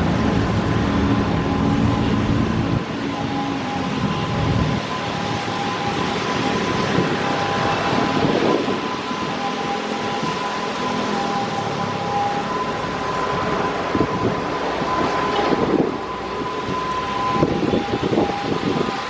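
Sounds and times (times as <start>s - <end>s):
steady high-pitched tone: 0.0s - 18.9s
bus passing close: 0.0s - 19.0s
traffic on wet road: 0.0s - 19.0s.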